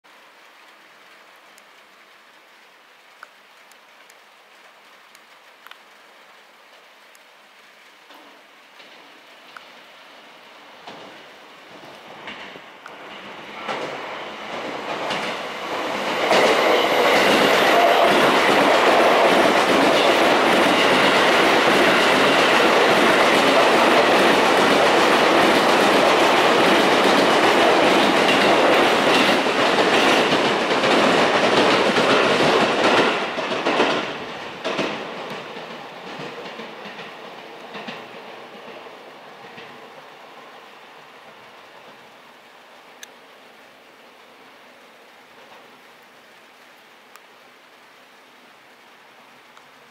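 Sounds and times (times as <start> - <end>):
electric train passing at speed: 8.7 - 45.8
wheels clacking over rail joints: 10.8 - 40.0.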